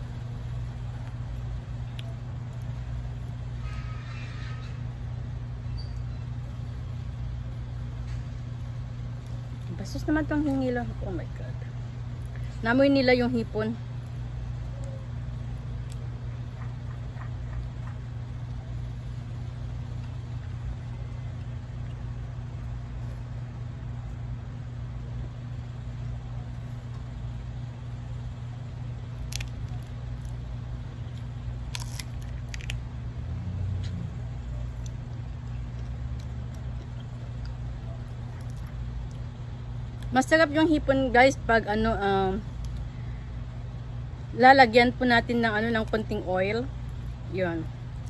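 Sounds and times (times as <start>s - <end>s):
steady low hum: 0.0s - 48.0s
shrimp shells being peeled: 29.0s - 33.0s, 34.7s - 39.3s.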